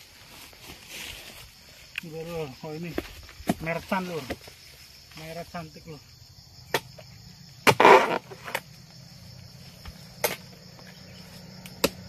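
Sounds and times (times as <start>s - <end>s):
crunching rustle of fronds: 0.0s - 5.5s
insects buzzing faintly: 0.0s - 12.0s
blade chopping into palm fronds: 7.6s - 8.6s.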